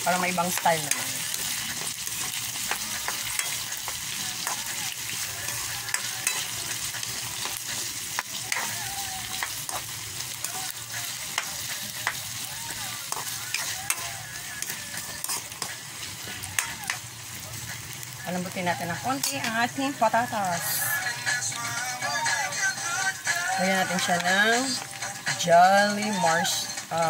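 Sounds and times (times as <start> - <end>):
spatula scraping metal wok: 0.0 - 17.8, 18.6 - 21.2
vegetables sizzling in oil: 0.0 - 27.0.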